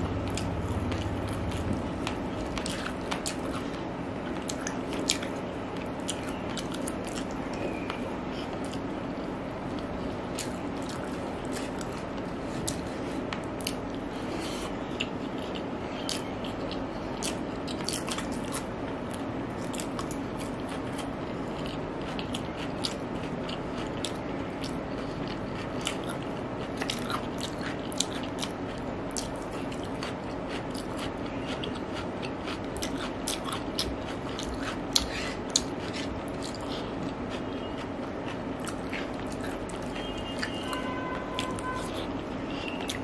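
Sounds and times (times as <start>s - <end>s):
chewing and crunching vegetables: 0.0s - 43.0s
steady low hum: 0.0s - 43.0s.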